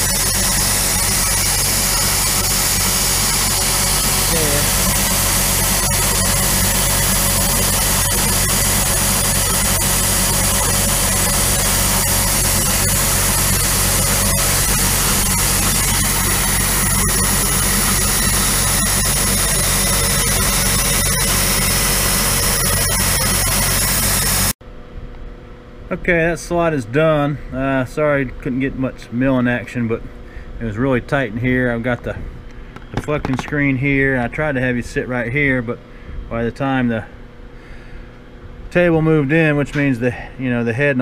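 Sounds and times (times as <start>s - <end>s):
mist coolant hissing: 0.0s - 24.5s
milling machine motor humming: 0.0s - 24.6s.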